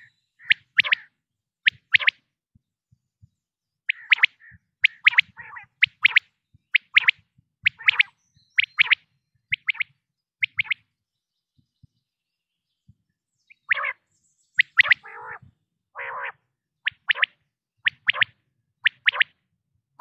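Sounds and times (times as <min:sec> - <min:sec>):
quail whistled calls: 0:00.0 - 0:02.2, 0:03.9 - 0:10.9, 0:13.5 - 0:19.4
low harsh bird calls: 0:03.8 - 0:10.9.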